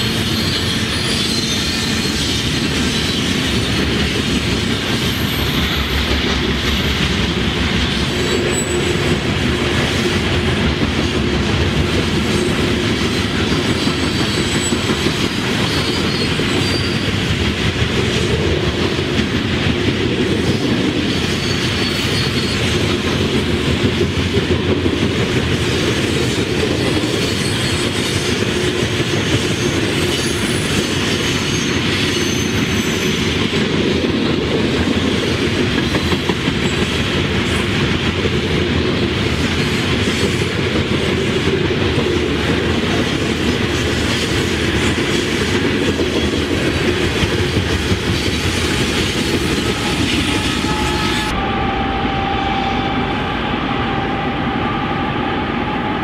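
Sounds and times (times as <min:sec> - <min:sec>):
high wheel squeal: 0:00.0 - 0:04.1, 0:04.9 - 0:07.0, 0:07.8 - 0:09.2, 0:12.3 - 0:17.4, 0:21.0 - 0:22.9, 0:26.0 - 0:28.4, 0:29.0 - 0:33.4, 0:48.2 - 0:56.0
train wheels clattering on rails: 0:00.0 - 0:51.4.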